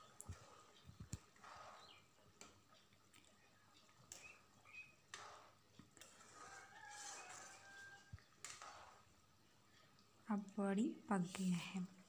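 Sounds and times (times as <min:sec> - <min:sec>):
metal spoon stirring curry: 0:03.6 - 0:09.1.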